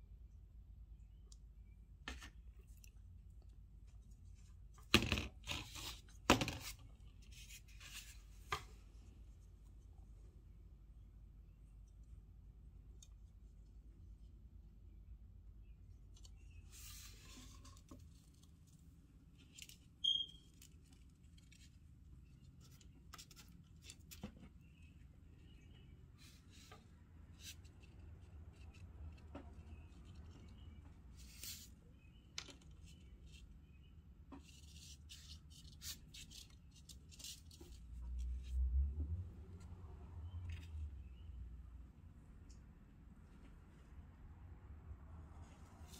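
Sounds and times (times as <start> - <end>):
short high squeak: 20.0 - 20.5.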